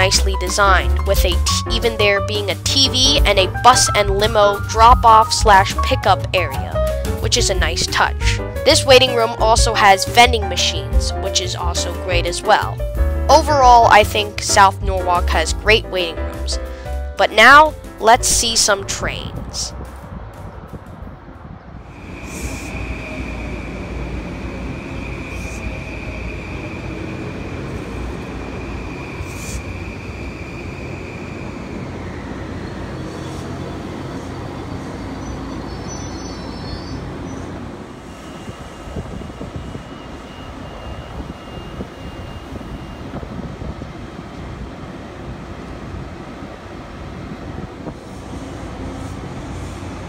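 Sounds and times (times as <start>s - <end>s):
electric train rumbling to a stop: 0.0s - 50.0s
high-pitched squeal: 21.9s - 43.2s.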